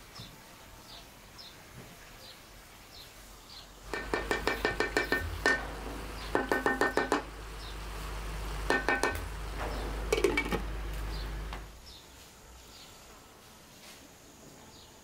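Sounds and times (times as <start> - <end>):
wooden spoon tapping metal pot: 3.9 - 5.7, 6.3 - 7.4, 8.6 - 9.4, 10.1 - 10.7
glass lid clinking on pot: 10.1 - 10.6.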